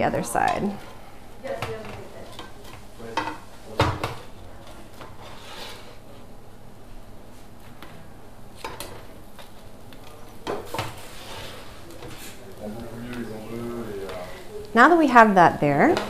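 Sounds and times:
spatula scraping and knocking griddle: 0.4 - 6.2, 8.6 - 14.5.

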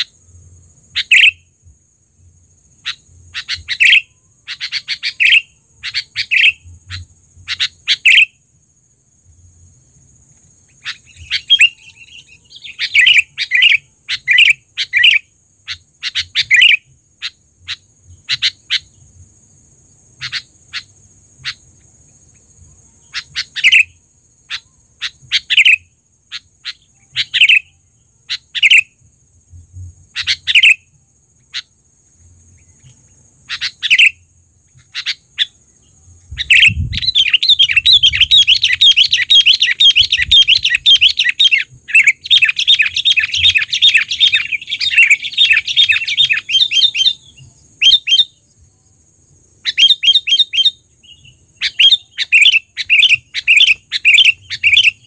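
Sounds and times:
bird calling and chattering: 0.9 - 1.4, 2.8 - 8.3, 10.7 - 19.0, 20.2 - 21.8, 23.0 - 28.9, 30.1 - 30.8, 32.7 - 35.6, 36.3 - 48.3, 49.6 - 55.0.

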